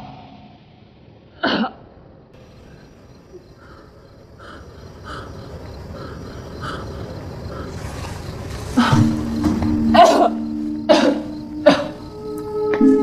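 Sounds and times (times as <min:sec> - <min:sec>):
woman coughing: 0:01.4 - 0:01.8, 0:09.9 - 0:12.0
faint chirps: 0:02.4 - 0:12.5.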